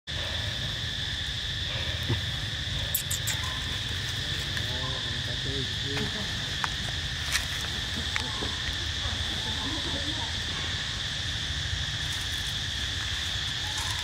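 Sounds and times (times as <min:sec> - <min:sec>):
insects droning: 0:00.1 - 0:14.0
faint pitched calls: 0:01.6 - 0:05.4.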